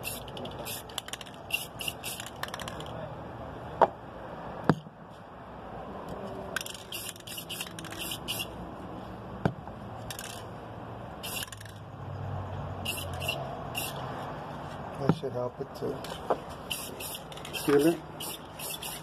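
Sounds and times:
spray can hissing: 0.0s - 2.4s, 6.8s - 8.6s, 11.2s - 11.7s, 12.8s - 14.0s, 16.6s - 19.0s.

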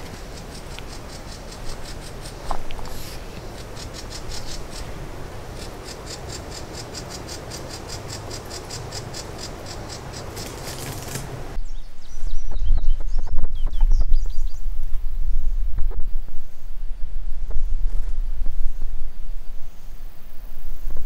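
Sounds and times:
insects pulsing high-pitched: 0.0s - 11.5s.

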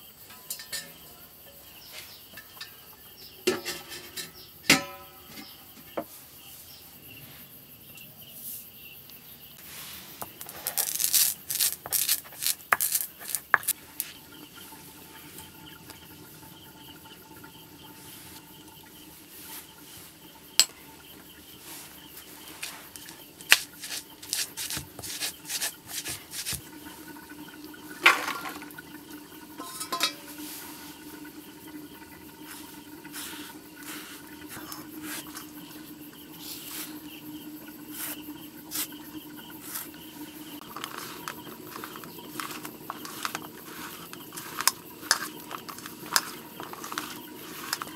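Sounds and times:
gritty stone grinding scrapes: 9.6s - 13.8s, 22.4s - 26.6s, 40.6s - 47.9s
stone-on-stone clacks: 10.2s - 14.1s, 20.5s - 20.8s, 22.6s - 26.7s, 29.6s - 30.4s, 40.6s - 47.9s.

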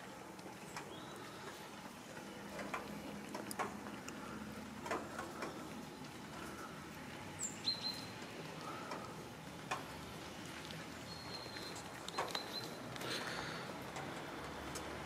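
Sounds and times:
cats chewing wet food: 0.0s - 7.4s, 8.1s - 15.0s
bird chirps: 0.8s - 1.5s, 7.4s - 8.2s, 11.0s - 12.8s.

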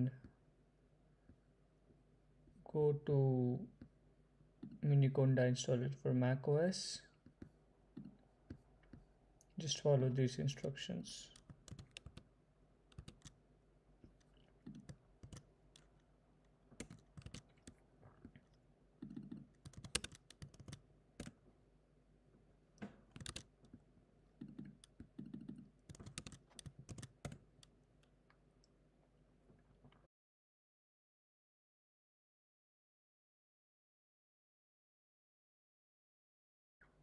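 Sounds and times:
computer keyboard keystrokes: 11.4s - 12.2s, 12.9s - 13.4s, 14.7s - 15.9s, 16.8s - 17.8s, 19.1s - 21.3s, 23.1s - 23.5s, 24.4s - 27.7s.

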